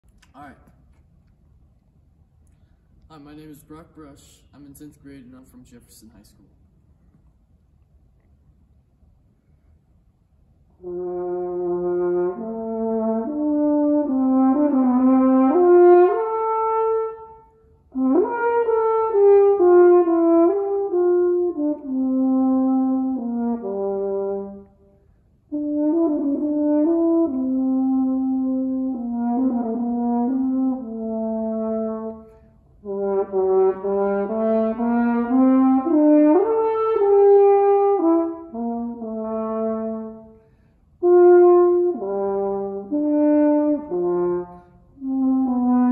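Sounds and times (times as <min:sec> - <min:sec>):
french horn melody: 0:10.6 - 0:45.9.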